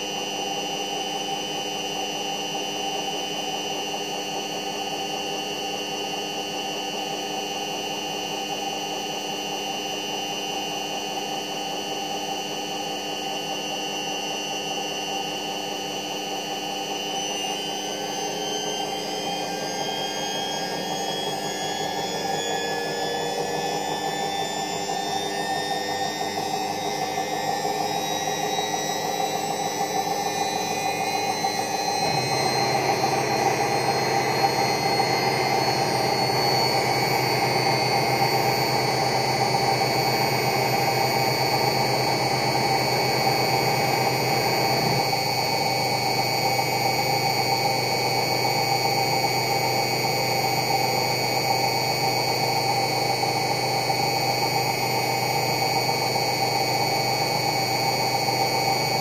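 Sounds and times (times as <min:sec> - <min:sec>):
washing machine drum spinning: 0:21.4 - 0:45.2.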